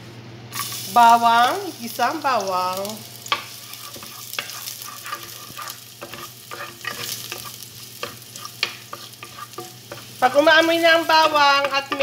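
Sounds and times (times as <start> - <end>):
garlic sizzling in oil: 0.5 - 12.0
wooden spatula scraping a pot: 3.6 - 12.0.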